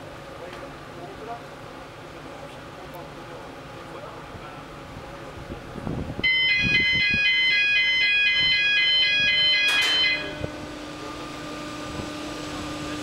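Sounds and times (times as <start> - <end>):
chairlift drive humming: 9.3 - 13.0.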